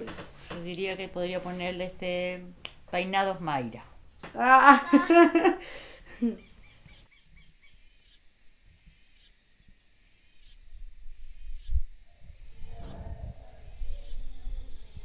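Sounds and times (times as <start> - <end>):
faint bird chirps: 6.2 - 15.0.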